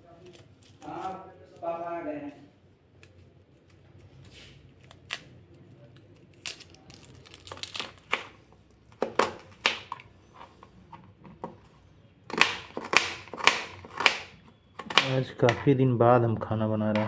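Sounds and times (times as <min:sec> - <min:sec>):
onion skin crackling: 0:00.0 - 0:02.2, 0:02.8 - 0:10.4
knife cutting onion on board: 0:12.3 - 0:15.7.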